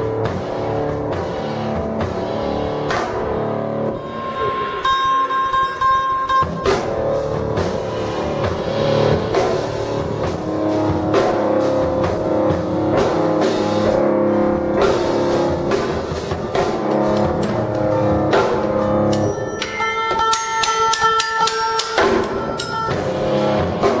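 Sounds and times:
drum kit: 0.0 - 24.0
electric stringed instrument: 0.0 - 24.0
high sustained ringing tones: 3.9 - 7.3, 17.3 - 23.8.

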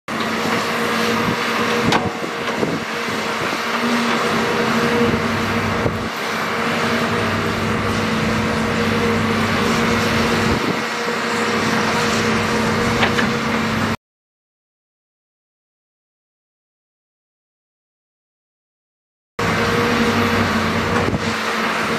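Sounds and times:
excavator diesel engine running: 0.1 - 14.0, 19.4 - 21.9.

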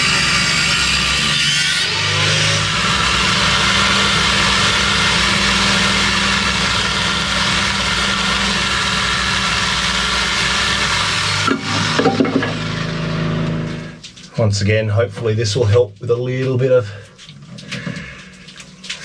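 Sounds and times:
angle grinder cutting metal pipe: 0.0 - 14.0.

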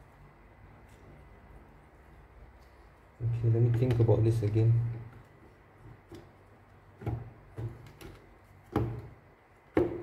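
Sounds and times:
circuit board knocking on plastic: 7.0 - 10.0.

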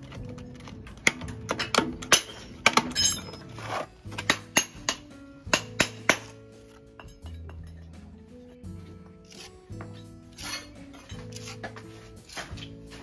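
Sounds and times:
background music: 0.0 - 13.0
metal hand tools clinking: 0.6 - 5.1, 9.3 - 13.0
trowel scraping: 3.3 - 4.1, 9.2 - 13.0.

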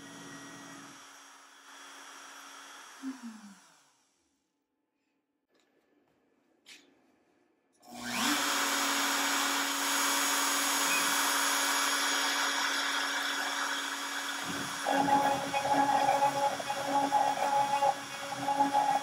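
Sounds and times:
router motor whining: 7.9 - 19.0.

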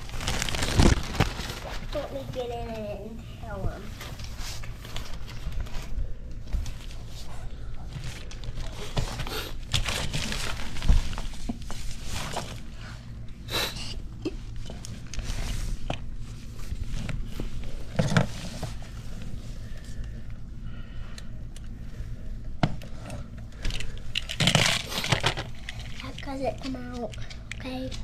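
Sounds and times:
steady low hum: 0.0 - 28.0
plastic toys being handled: 22.7 - 28.0.

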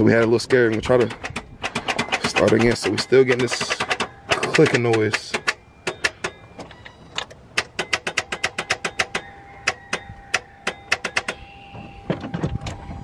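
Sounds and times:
starter clicking rapidly: 0.0 - 6.4.

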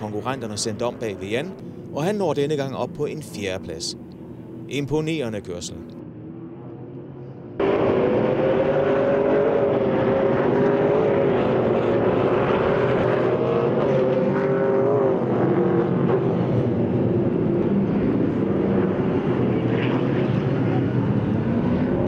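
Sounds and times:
race car engines at high revs: 6.7 - 22.0.

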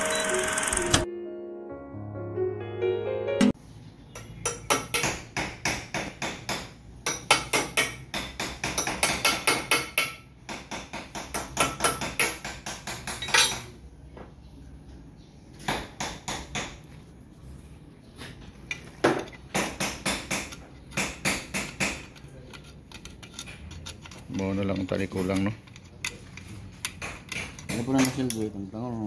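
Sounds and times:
hammer tapping on metal: 4.2 - 13.7.

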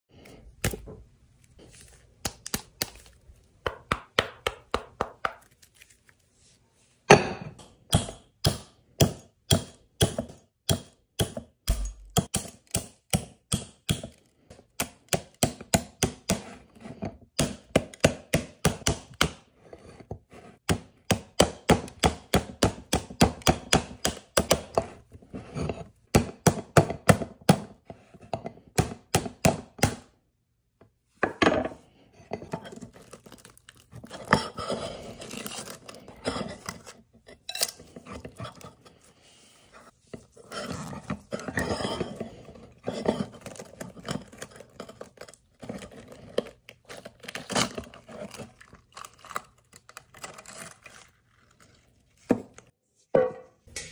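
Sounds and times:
knife chopping on cutting board: 7.1 - 14.2.

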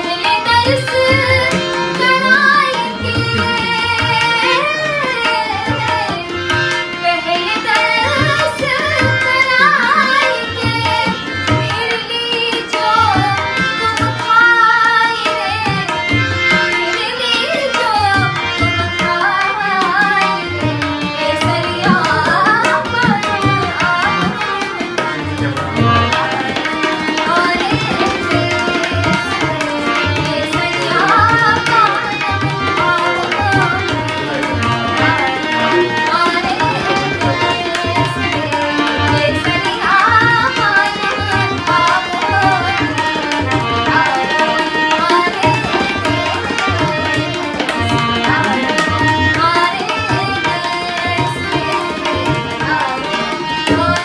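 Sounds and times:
harmonium: 0.0 - 54.0
tabla drumming: 0.0 - 54.0
person singing ornamented melody: 30.3 - 31.6.

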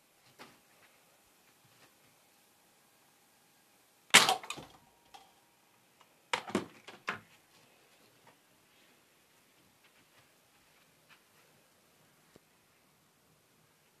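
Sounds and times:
toy blaster firing snap: 4.2 - 4.7
plastic clicks and knocks: 6.3 - 7.2.

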